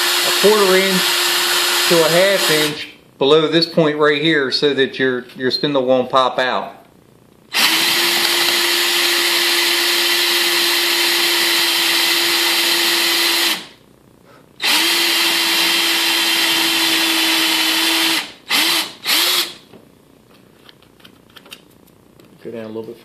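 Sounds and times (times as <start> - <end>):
power drill boring into wood: 0.0 - 2.8, 7.5 - 13.7, 14.6 - 19.6.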